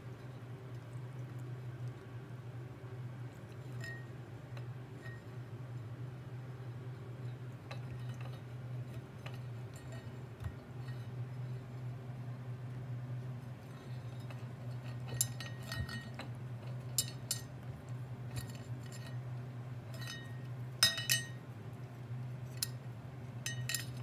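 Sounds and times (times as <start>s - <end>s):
metal bowl clinking: 3.5s - 4.2s, 13.6s - 17.7s, 19.9s - 21.4s, 23.4s - 24.0s.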